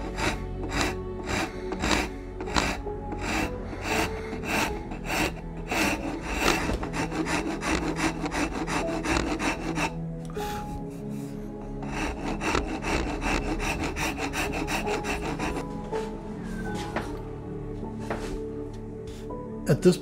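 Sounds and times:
hand rasp scraping wood: 0.0 - 10.0, 10.9 - 15.7
background music: 0.0 - 20.0.

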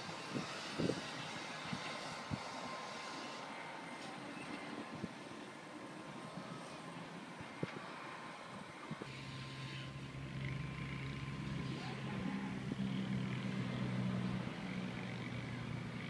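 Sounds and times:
car engine approaching: 5.8 - 16.0.

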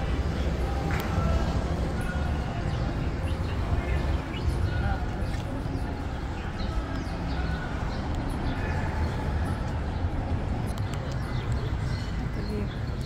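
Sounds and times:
faint street noise: 0.0 - 13.0
footsteps on sidewalk: 0.0 - 13.0.

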